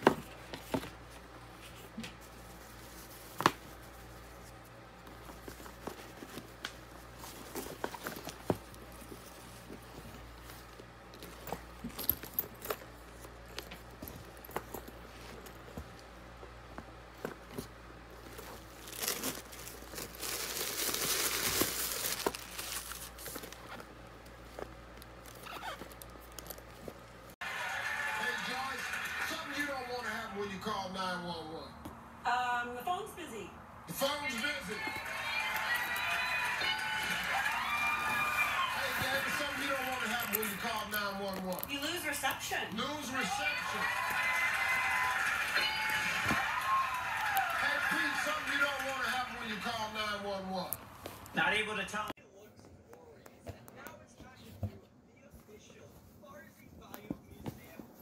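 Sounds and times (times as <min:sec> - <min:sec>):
packaging rustling and tapping: 0:05.0 - 0:27.0.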